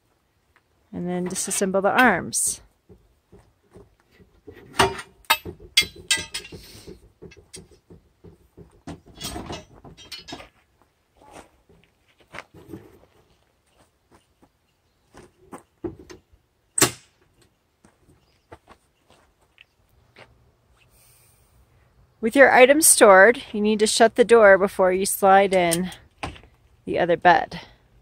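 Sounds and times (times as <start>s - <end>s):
metal clanks rattles and scrapes: 3.8s - 10.6s, 11.7s - 13.4s.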